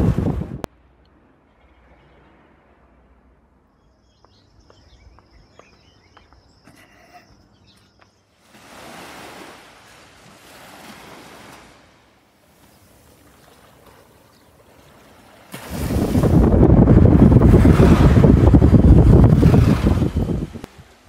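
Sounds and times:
waves washing on shore: 0:08.4 - 0:21.0.

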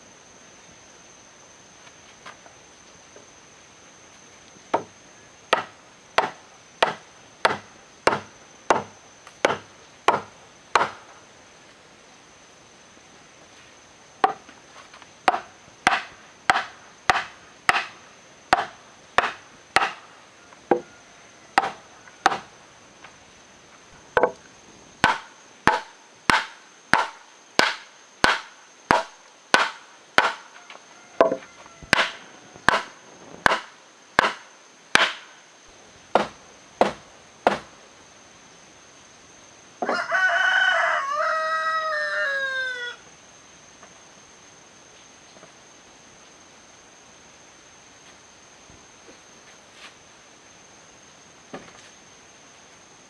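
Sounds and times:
wood-on-wood knocks: 0:24.2 - 0:24.4, 0:31.2 - 0:33.6.

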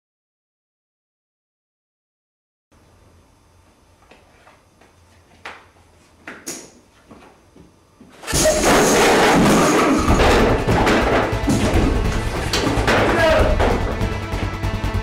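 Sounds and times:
film soundtrack with crashing effects: 0:08.3 - 0:15.0.

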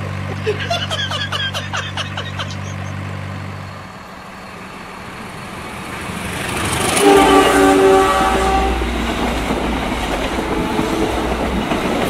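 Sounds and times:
train rumble: 0:00.0 - 0:12.0
truck engine running: 0:00.0 - 0:12.0
train horn: 0:06.6 - 0:11.8.

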